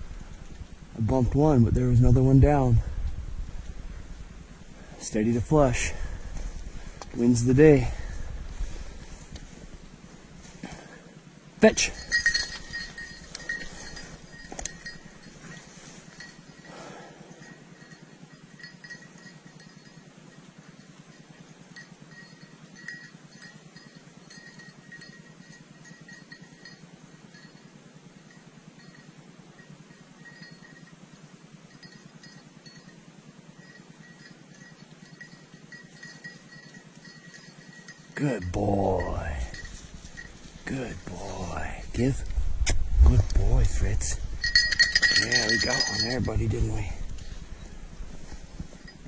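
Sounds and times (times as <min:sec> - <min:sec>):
collar bell tinkling: 0:11.6 - 0:42.3, 0:43.1 - 0:49.0
rustling in brush: 0:12.0 - 0:16.7, 0:39.4 - 0:42.6.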